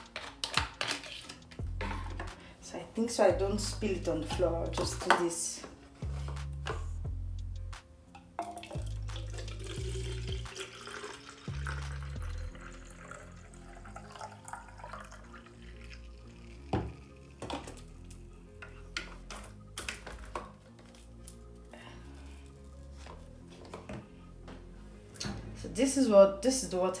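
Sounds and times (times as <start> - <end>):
background music: 0.0 - 27.0
water pouring into plastic bottle: 8.4 - 17.4.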